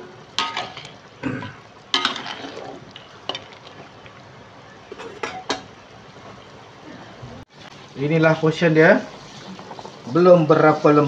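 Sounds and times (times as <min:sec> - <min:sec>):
steady low hiss: 0:00.0 - 0:11.0
metal ladle scraping wok: 0:02.0 - 0:04.0.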